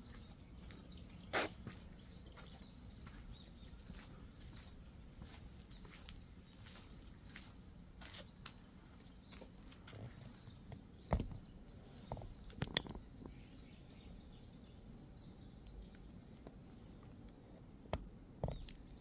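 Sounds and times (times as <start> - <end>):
sharp clicks: 12.4 - 13.0.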